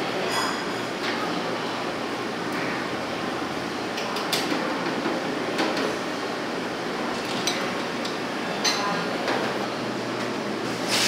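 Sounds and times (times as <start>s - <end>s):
steady hiss from cooking station: 10.6s - 11.0s.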